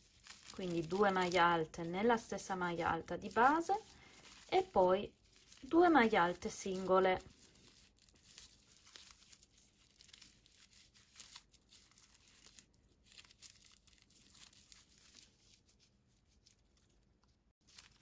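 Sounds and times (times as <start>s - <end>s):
yarn crinkling and rustling: 0.0s - 18.0s.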